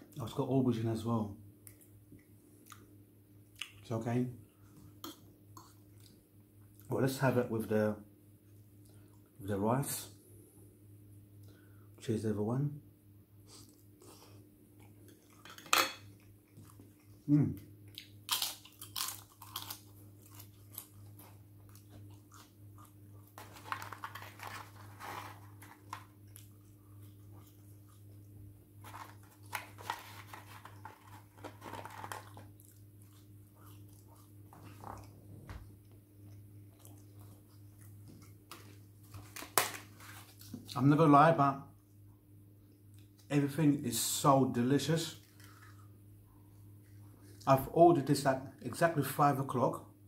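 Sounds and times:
low steady hum: 0:00.0 - 0:50.0
chewing food: 0:13.6 - 0:24.8, 0:25.4 - 0:39.3, 0:45.2 - 0:46.0.

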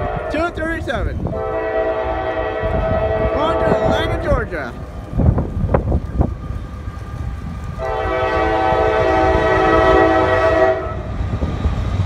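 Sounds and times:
locomotive air horn chord: 0:00.0 - 0:00.5, 0:01.3 - 0:04.5, 0:07.8 - 0:11.1.

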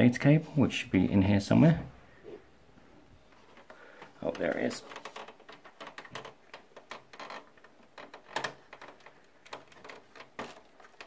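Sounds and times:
plastic clicks and taps in pc case: 0:04.3 - 0:11.0.

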